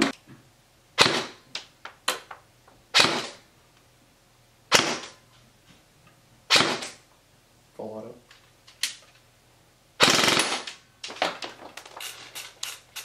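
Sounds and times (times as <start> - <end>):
airsoft rifle shots: 1.0 - 1.4, 2.9 - 3.4, 4.7 - 5.2, 6.5 - 7.0, 10.0 - 10.8.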